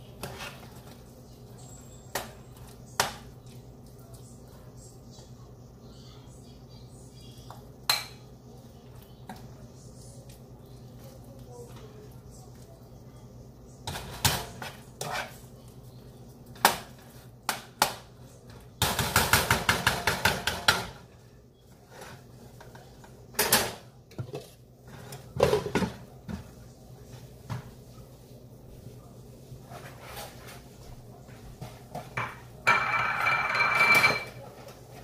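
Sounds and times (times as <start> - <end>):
cookware knocks and clinks: 32.0 - 34.4.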